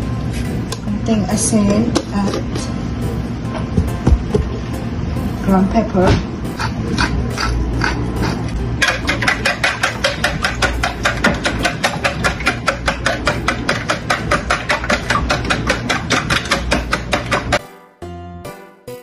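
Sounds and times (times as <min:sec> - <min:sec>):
whisk clicking against glass bowl: 0:08.8 - 0:17.6.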